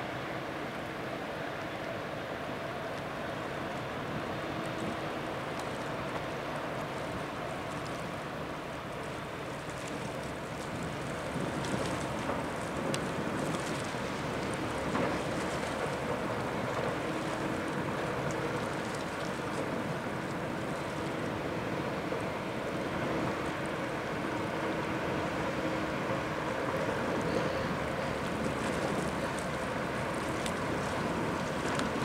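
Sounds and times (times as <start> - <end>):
ship engines droning: 12.0 - 32.0.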